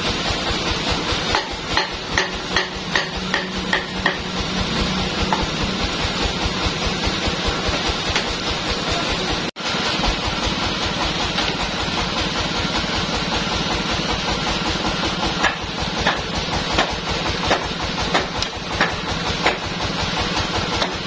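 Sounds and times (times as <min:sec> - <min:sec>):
sawmill engine running: 0:00.0 - 0:21.0
sharp knocks: 0:01.3 - 0:04.4.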